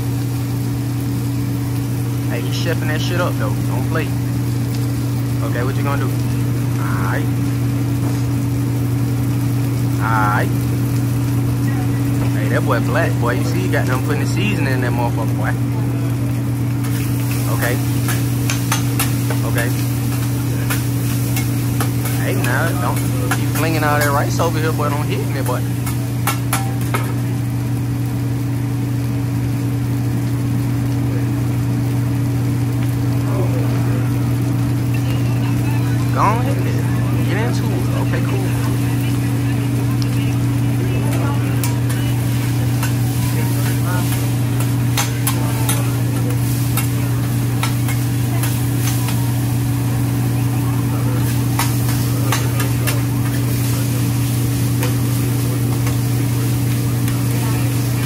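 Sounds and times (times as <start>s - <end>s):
exhaust hood fan drone: 0.0s - 58.0s
food sizzling on a griddle: 0.0s - 58.0s
steady low hum: 0.0s - 58.0s
metal spatulas striking griddle: 18.0s - 19.4s, 20.1s - 24.2s, 25.8s - 27.1s, 43.6s - 47.0s, 47.6s - 49.1s, 51.2s - 53.4s.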